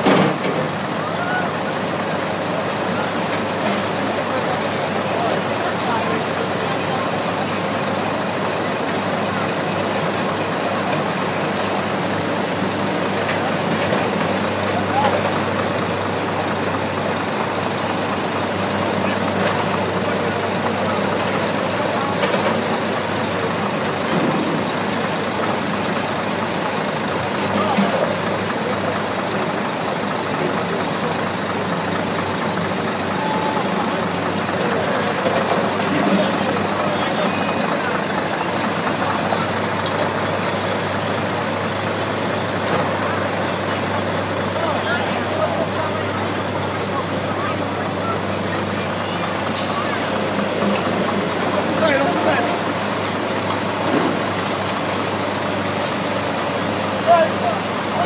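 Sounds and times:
large engine humming: 0.0 - 58.0.

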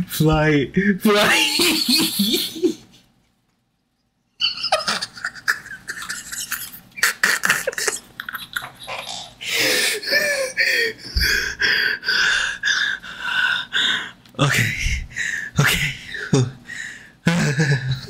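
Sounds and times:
man laughing: 1.1 - 2.9, 4.4 - 11.4, 17.2 - 18.0.

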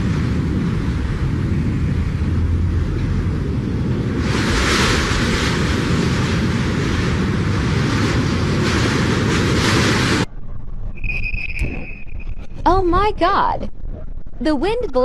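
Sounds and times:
vehicle road noise: 0.0 - 6.3
strong wind rushing: 0.0 - 15.0.

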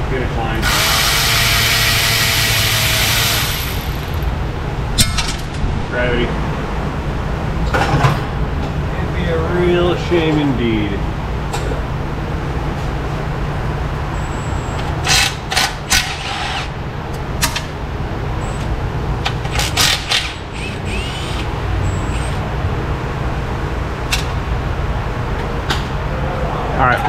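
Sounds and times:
low hum: 0.0 - 9.0
cordless ratchet spinning: 0.6 - 4.3, 19.6 - 21.5.

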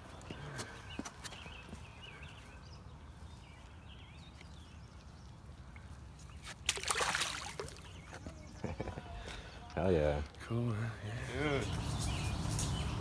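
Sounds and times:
faint birds chirping: 0.0 - 13.0
fish splashing in water: 6.5 - 7.9.

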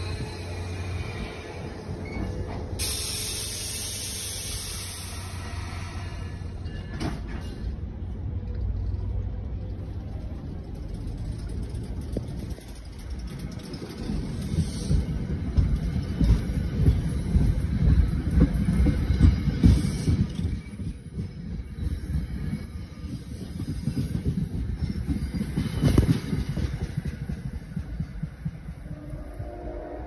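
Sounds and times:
train wheels rumbling on rail: 0.0 - 30.0
wheels clanking over rail joints: 8.4 - 28.9.

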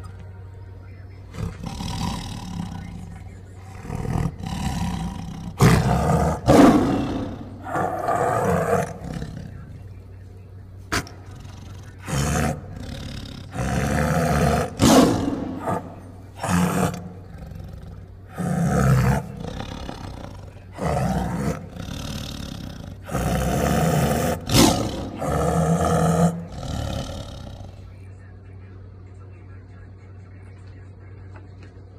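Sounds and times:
lemur growl-like calls: 1.3 - 9.9, 10.9 - 27.9.

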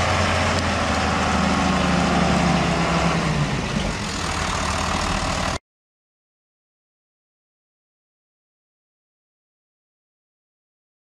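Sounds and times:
tractor diesel engine running: 0.0 - 5.6.

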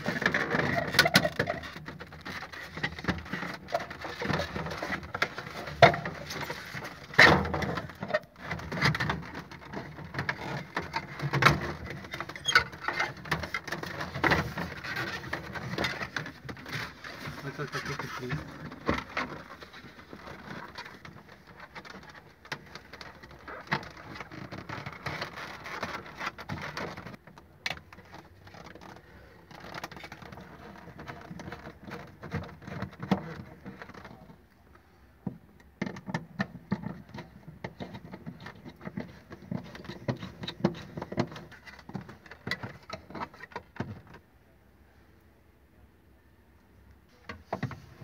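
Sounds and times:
plastic parts clicking and rattling: 0.0 - 34.5, 35.2 - 44.2.

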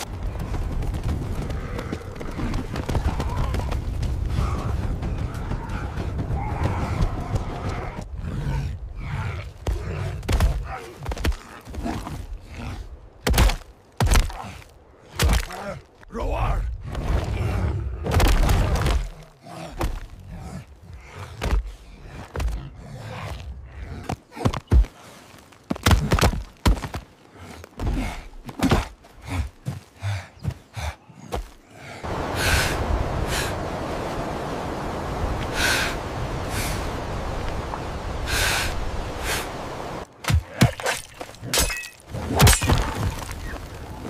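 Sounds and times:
thuds and scuffs on dusty ground: 18.0 - 31.7.

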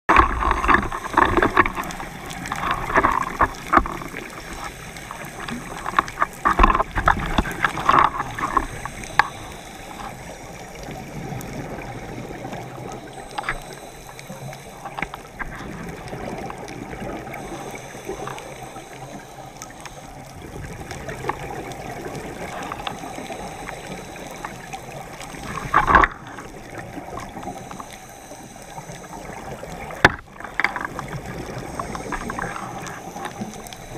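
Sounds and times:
gurgling exhaled bubbles: 0.1 - 33.9
underwater hiss: 0.1 - 33.9.

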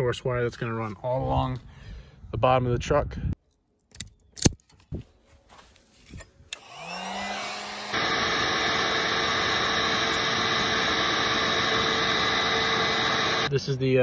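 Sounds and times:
heat gun fan whine: 6.5 - 13.5.

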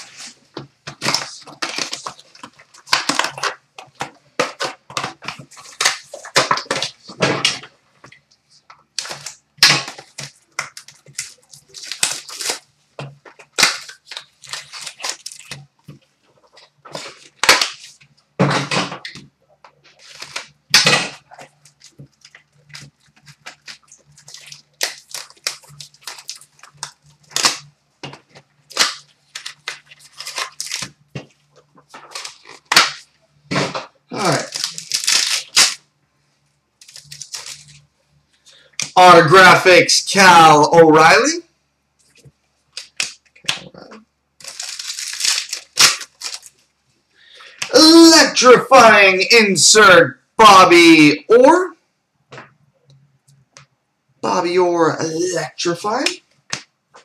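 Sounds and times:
card packs crackling and clicking: 0.0 - 35.8, 36.8 - 39.0, 42.0 - 48.4.

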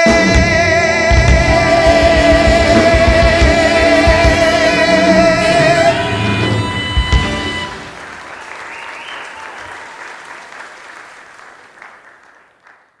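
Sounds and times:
audience applauding: 7.2 - 13.0.

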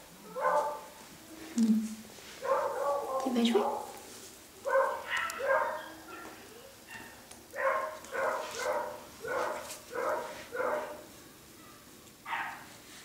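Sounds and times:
puppy barking: 0.3 - 0.9, 2.4 - 4.0, 4.6 - 11.1, 12.3 - 12.7.

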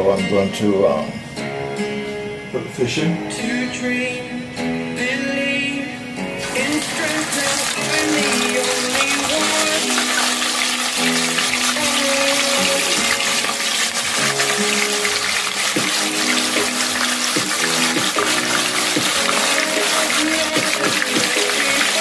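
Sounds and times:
background music with held notes: 0.0 - 22.0
fish sizzling in hot oil: 6.4 - 22.0.

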